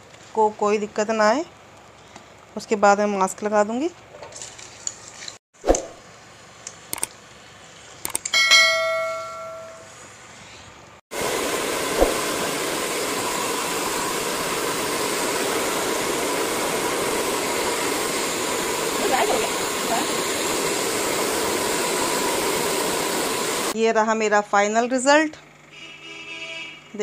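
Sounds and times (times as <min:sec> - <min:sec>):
sharp clicks: 0:06.7 - 0:07.2, 0:08.0 - 0:08.4
bright bell ding: 0:08.4 - 0:09.9
hair dryer blowing: 0:11.1 - 0:23.8.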